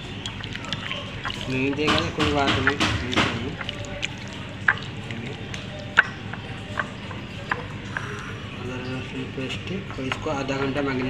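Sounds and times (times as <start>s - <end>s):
wet squelches of mixing meat: 0.0s - 11.0s.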